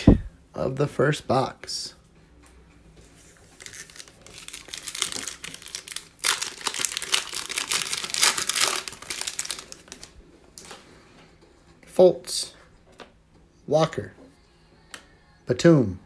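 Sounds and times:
plastic wrapper crinkling and tearing: 3.5s - 10.8s.

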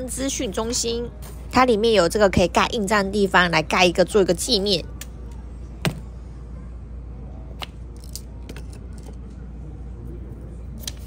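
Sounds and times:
steady low hum: 0.0s - 11.0s
rubber stamp knocking on wood: 5.8s - 6.0s.

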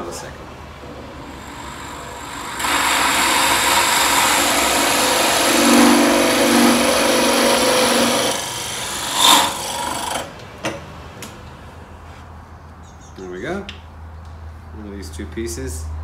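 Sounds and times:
pillar drill boring into wood: 1.3s - 10.3s.

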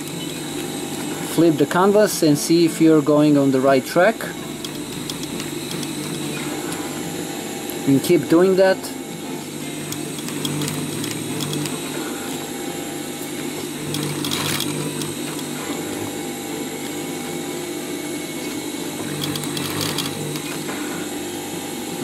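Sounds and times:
sewing machine stitching: 4.4s - 7.1s, 9.6s - 12.6s, 13.4s - 17.0s, 18.4s - 21.0s.

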